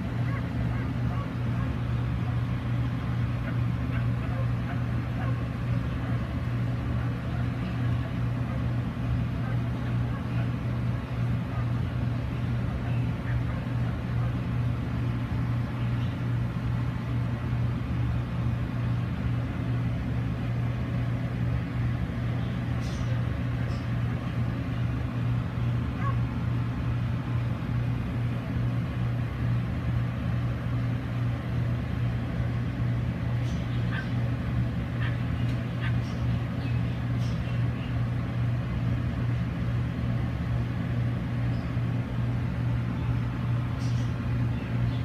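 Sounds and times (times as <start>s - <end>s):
low hum: 0.0s - 45.0s
faint dog barks: 0.2s - 2.4s, 3.4s - 6.4s, 7.0s - 10.6s, 11.4s - 11.9s, 25.9s - 26.3s, 33.5s - 34.3s, 35.0s - 36.3s.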